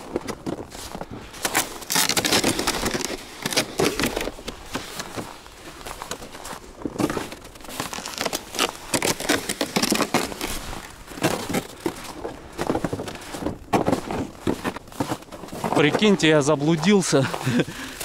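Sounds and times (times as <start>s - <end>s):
footsteps crunching on snow: 0.0s - 18.0s.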